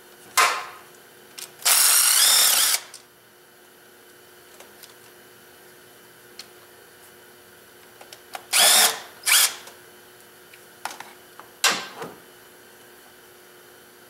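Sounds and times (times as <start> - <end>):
power driver whirring: 1.6 - 3.0, 8.5 - 9.7.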